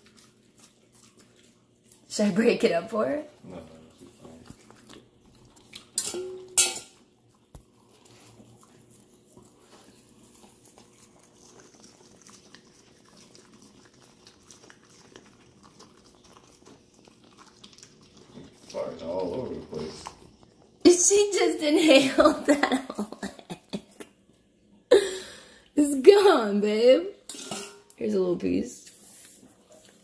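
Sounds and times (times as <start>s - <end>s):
puppy chewing and licking: 0.0s - 20.9s.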